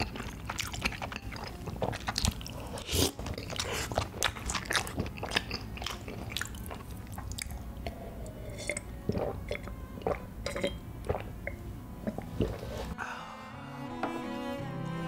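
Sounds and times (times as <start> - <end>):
close chewing: 0.0 - 11.2
swallowing gulps: 0.0 - 12.7.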